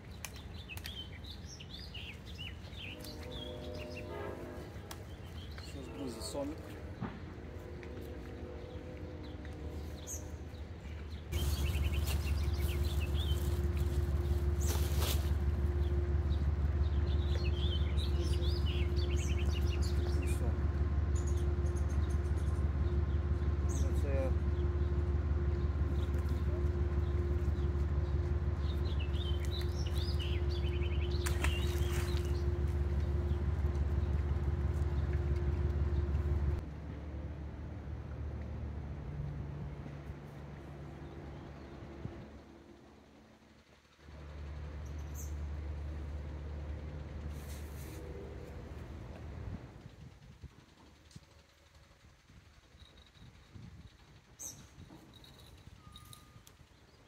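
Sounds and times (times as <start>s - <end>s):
birds chirping: 0.0s - 36.6s
low rumble and hum: 0.0s - 57.0s.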